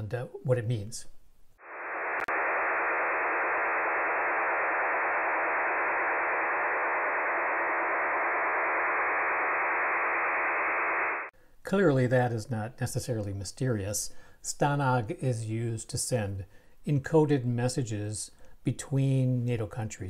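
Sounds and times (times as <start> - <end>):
data transmission hiss: 1.6 - 11.3.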